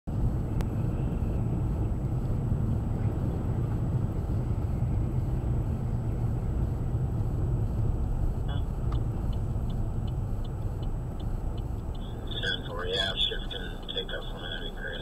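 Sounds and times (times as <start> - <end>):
car driving on snowy road: 0.1 - 15.0
faint high-pitched whine: 12.0 - 15.0.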